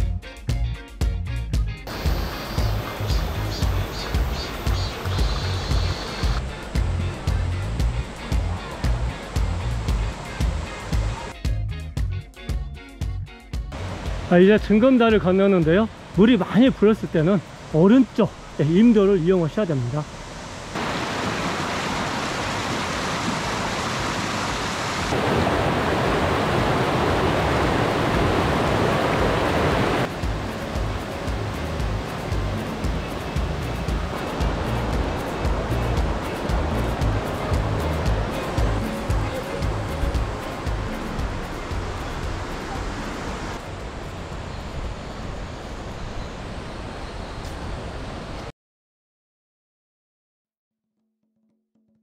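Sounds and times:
stream rushing over boulders: 0:01.9 - 0:11.3, 0:13.7 - 0:48.5
wind noise on microphone: 0:01.9 - 0:11.3, 0:25.1 - 0:48.5.

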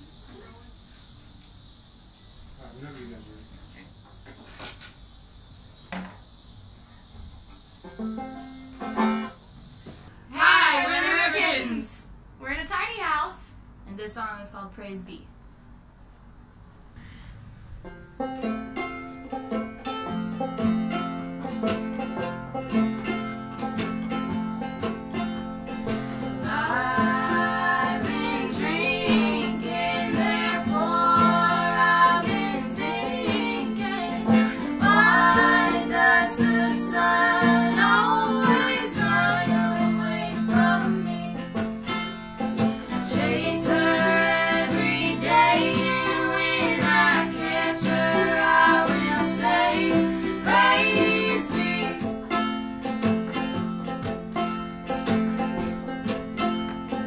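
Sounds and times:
bluegrass string band playing: 0:08.0 - 0:09.4, 0:17.8 - 0:57.0
women singing in harmony: 0:10.3 - 0:12.0, 0:26.4 - 0:41.6, 0:42.9 - 0:52.1.

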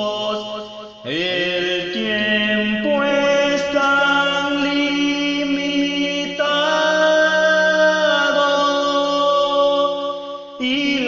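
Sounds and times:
praise song singing: 0:00.0 - 0:11.0.

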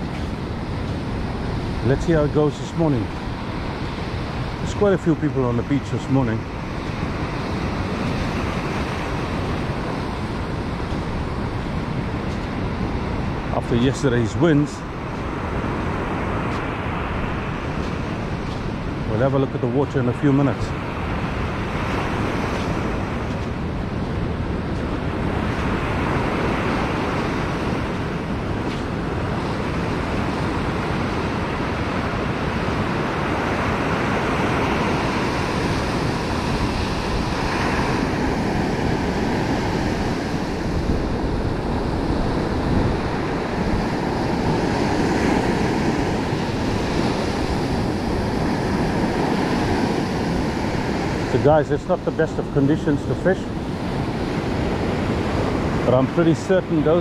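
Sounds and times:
surf breaking on beach: 0:00.0 - 0:57.0
wind rumbling on microphone: 0:00.0 - 0:57.0.

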